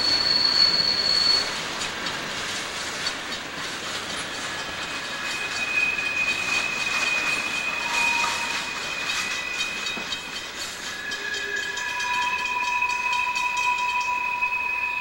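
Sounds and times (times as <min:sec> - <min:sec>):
high-pitched wheel squeal: 0:00.0 - 0:01.6, 0:04.4 - 0:15.0
wheels clicking over rail joints: 0:00.2 - 0:14.4.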